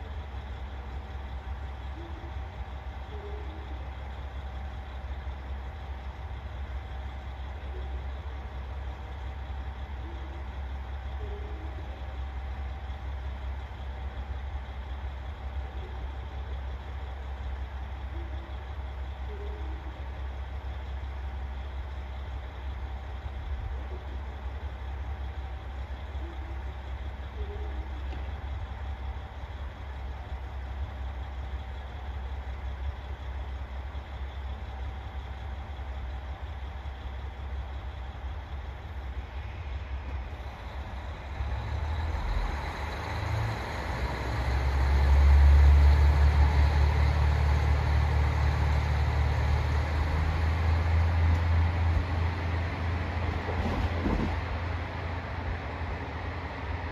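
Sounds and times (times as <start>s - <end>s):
diesel railcar engine idling: 0.0s - 56.9s.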